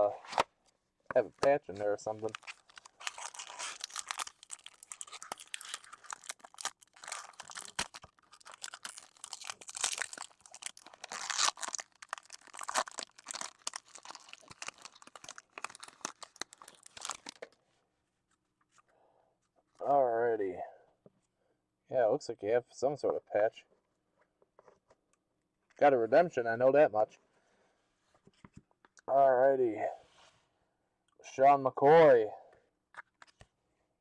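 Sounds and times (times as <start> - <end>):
foil wrapper crinkling: 2.1 - 17.5.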